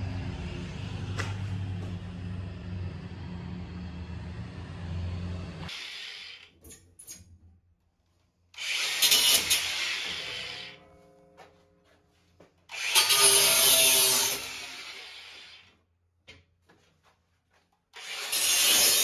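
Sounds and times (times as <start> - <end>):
low engine drone: 0.0 - 5.7.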